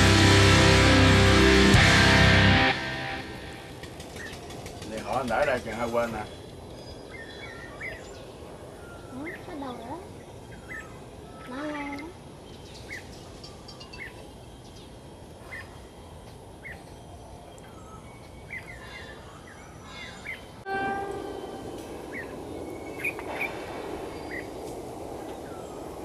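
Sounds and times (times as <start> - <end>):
approaching train: 0.0 - 11.7, 20.3 - 26.0
birds chirping: 0.0 - 26.0
train horn blast: 20.6 - 23.0.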